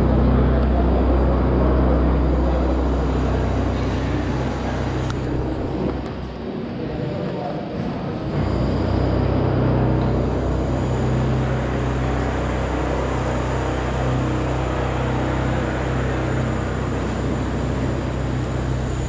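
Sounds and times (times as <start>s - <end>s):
motor vehicle rumble: 0.0s - 6.8s.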